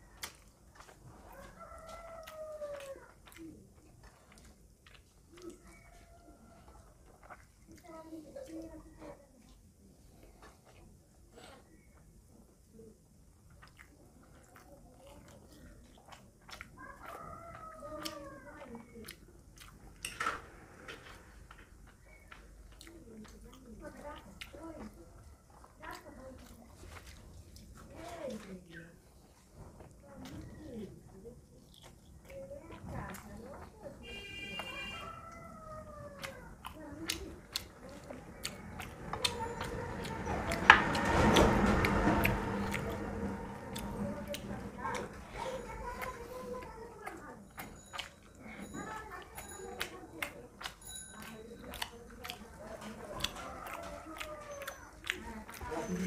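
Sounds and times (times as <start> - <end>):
fingers mixing rice on plate: 0.0 - 8.8, 31.8 - 56.0
chewing and wet mouth clicks: 0.0 - 12.1, 13.2 - 56.0.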